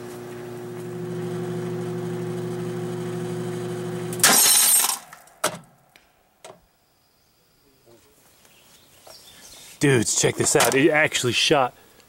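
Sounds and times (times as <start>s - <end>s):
microwave oven humming: 0.0s - 4.2s
sharp crack: 4.1s - 6.3s
loud crash of cartridge cooking off: 4.2s - 5.7s.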